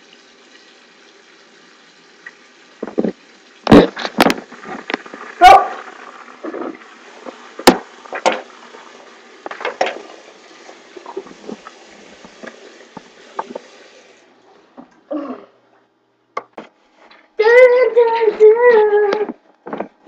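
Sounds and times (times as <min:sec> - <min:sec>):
tap water running into sink: 0:00.0 - 0:14.2
objects knocking on counter: 0:02.8 - 0:04.5.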